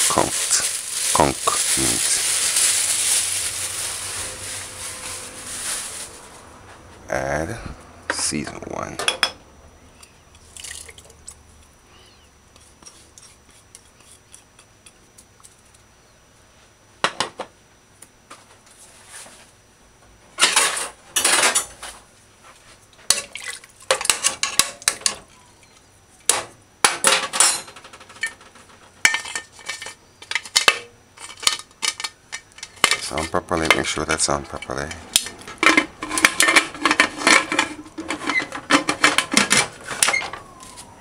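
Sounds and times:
metal pot and lid clanking: 35.2s - 40.2s.

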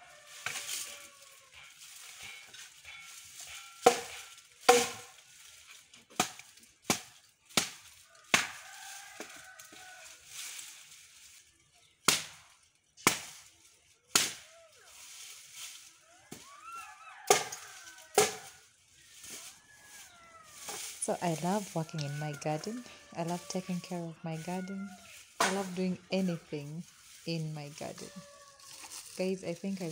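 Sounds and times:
hand tool striking wooden poles: 0.4s - 8.6s, 12.0s - 13.5s, 14.1s - 14.5s, 17.3s - 18.6s, 20.6s - 22.1s, 25.1s - 25.9s.

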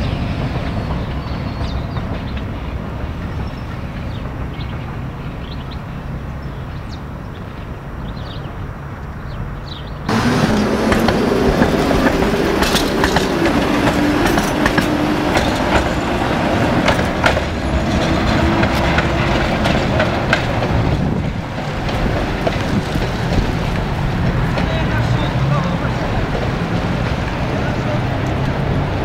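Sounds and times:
tram wheels clacking over rail joints: 0.0s - 5.7s, 10.1s - 29.0s
tram motor whine: 10.1s - 29.0s.

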